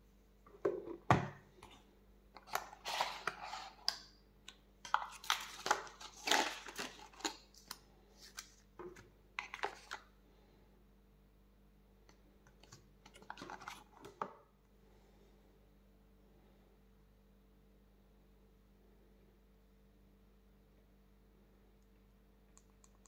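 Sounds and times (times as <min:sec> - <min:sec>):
packaging rustling and clicking: 0:04.9 - 0:08.6.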